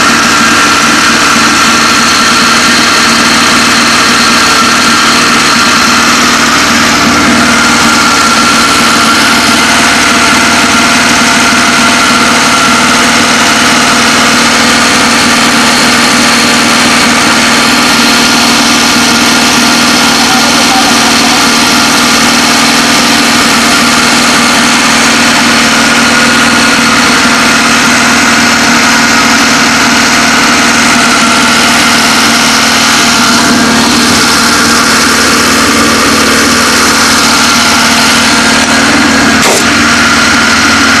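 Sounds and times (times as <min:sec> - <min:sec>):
car engine idling: 0:00.0 - 0:41.0.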